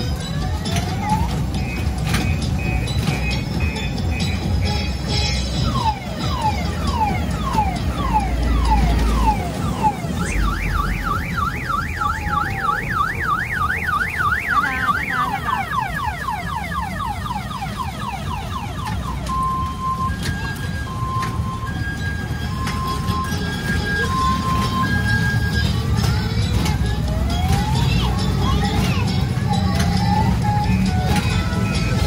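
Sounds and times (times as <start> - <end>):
electronic siren cycling tones: 5.7 - 25.6.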